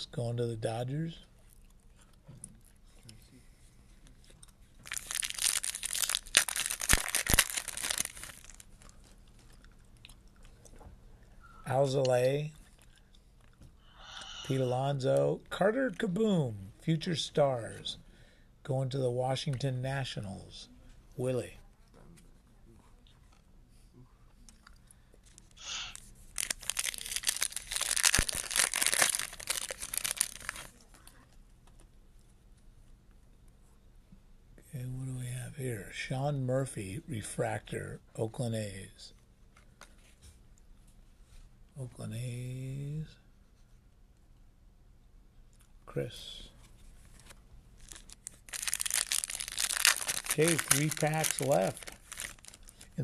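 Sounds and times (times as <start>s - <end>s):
foil wrapper crinkling and tearing: 4.8s - 9.2s, 25.3s - 31.0s, 47.2s - 53.0s.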